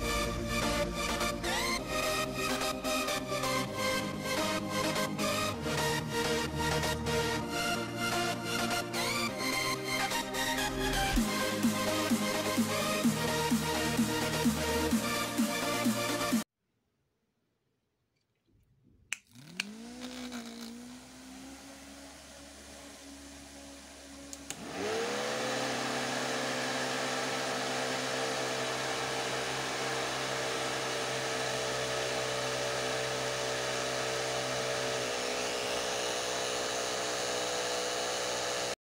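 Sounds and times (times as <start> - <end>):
motor click: 19.1 - 20.8, 24.3 - 24.6
small motor whining: 19.3 - 38.8.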